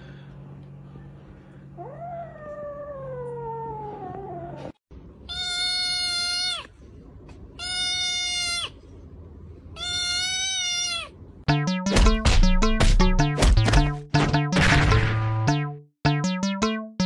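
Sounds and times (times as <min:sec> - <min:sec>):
cat meowing: 0:05.3 - 0:06.7, 0:07.6 - 0:08.8, 0:09.8 - 0:11.2
kitten crying out: 0:05.3 - 0:06.7, 0:07.6 - 0:08.8, 0:09.8 - 0:11.2.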